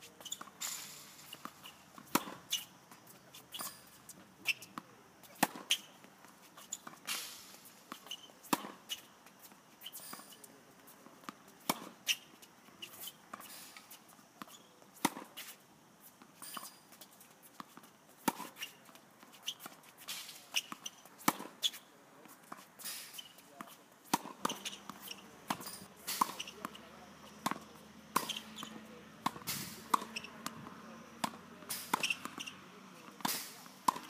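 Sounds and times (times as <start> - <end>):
tennis ball struck by racket: 0.4 - 2.7, 5.3 - 5.9, 7.9 - 8.8, 20.1 - 21.7, 24.1 - 26.8, 27.4 - 30.6, 31.2 - 32.5, 33.1 - 34.0.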